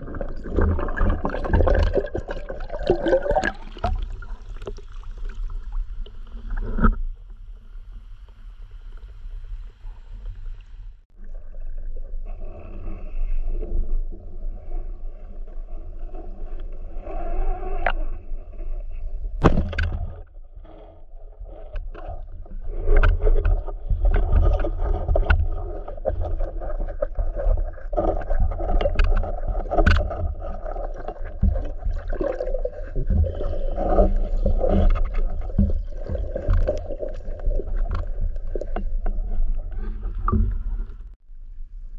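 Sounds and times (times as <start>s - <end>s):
muffled underwater sloshing: 0.0s - 41.2s.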